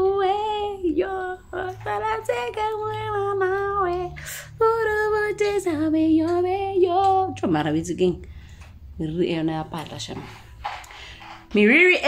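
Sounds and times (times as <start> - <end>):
woman singing unaccompanied: 0.0 - 8.3, 9.0 - 10.5, 11.4 - 12.0
breath: 10.9 - 11.4.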